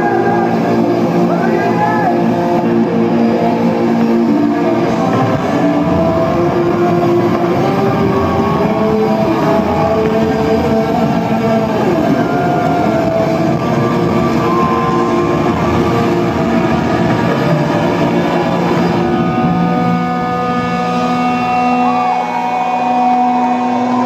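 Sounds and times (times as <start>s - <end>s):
rock music: 0.0s - 24.0s
pitched shouts: 1.3s - 2.3s, 11.2s - 15.9s
crowd cheering and clapping: 3.8s - 24.0s.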